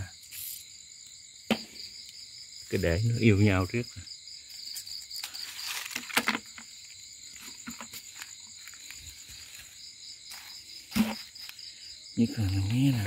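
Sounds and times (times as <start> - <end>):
night insects chirring: 0.0 - 13.0
rustling dry leaves: 5.2 - 11.6.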